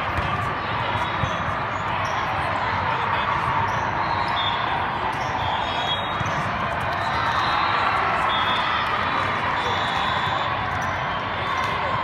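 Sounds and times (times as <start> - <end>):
basketball bouncing on gym court: 0.0 - 1.4
crowd chatter: 0.0 - 12.0.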